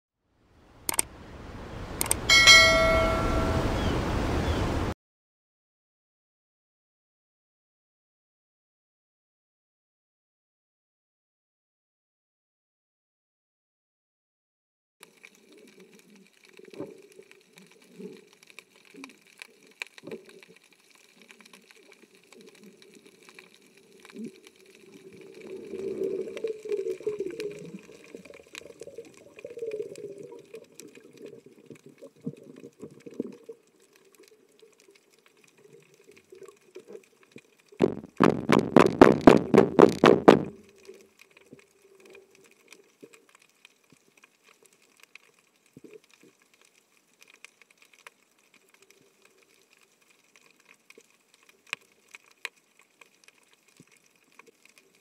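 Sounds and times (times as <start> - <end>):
soft water noise: 0.4 - 5.0, 15.0 - 55.0
rapid underwater rattle: 15.1 - 44.6.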